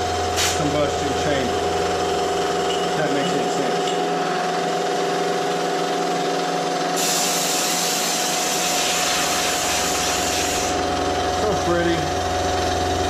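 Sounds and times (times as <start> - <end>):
milling machine motor whine: 0.0 - 13.0
compressed air hissing: 0.4 - 0.6, 7.0 - 10.9.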